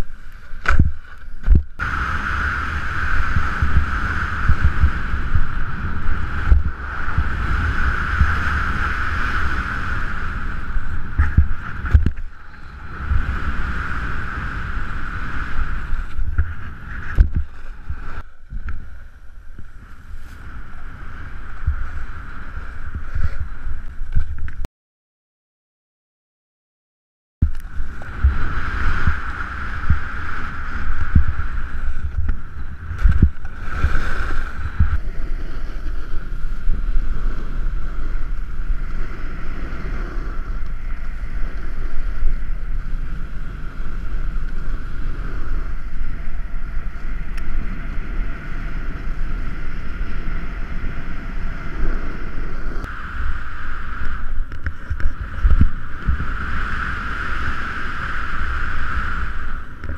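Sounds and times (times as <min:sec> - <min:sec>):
snowboard scraping over snow: 0:00.0 - 0:24.4, 0:27.6 - 0:59.9
wind rush on microphone: 0:00.0 - 0:24.7, 0:27.4 - 0:59.9.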